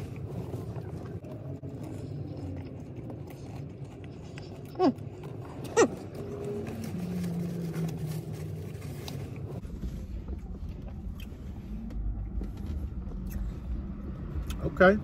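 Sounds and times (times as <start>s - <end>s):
crunching while chewing: 0.0s - 9.6s
passing traffic rumble: 0.0s - 15.0s.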